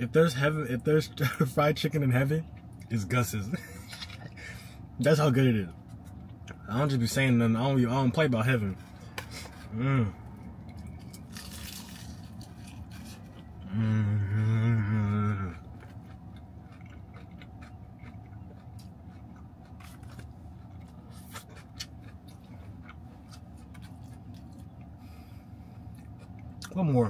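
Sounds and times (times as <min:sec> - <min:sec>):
man chewing food: 0:03.6 - 0:04.7, 0:08.8 - 0:26.8
man humming mmm: 0:09.7 - 0:10.2, 0:13.6 - 0:15.6.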